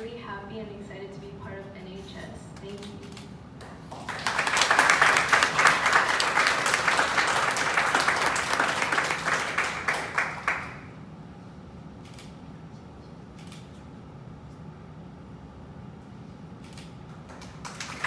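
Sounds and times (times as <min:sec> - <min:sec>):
audience applauding: 0:03.9 - 0:10.9, 0:17.2 - 0:18.0.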